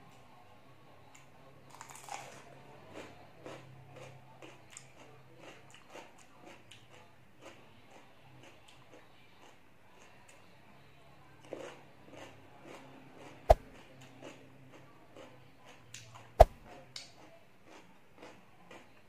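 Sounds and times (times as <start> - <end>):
chewing crisp cucumber: 1.1 - 10.5, 11.4 - 19.0.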